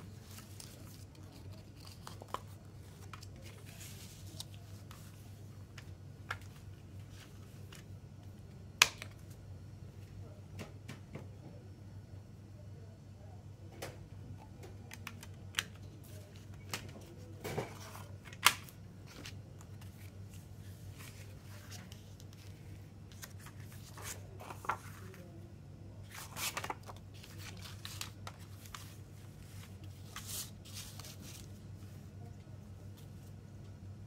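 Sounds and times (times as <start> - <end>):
paper rustling: 0.0 - 7.9, 19.0 - 25.3, 26.0 - 32.0
low steady hum: 0.0 - 34.0.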